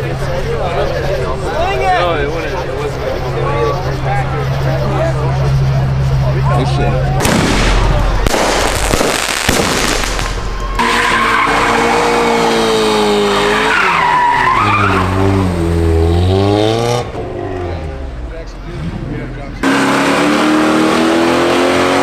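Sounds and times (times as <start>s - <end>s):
tires skidding and squealing: 10.4s - 18.0s
car engine at high revs: 10.8s - 22.0s.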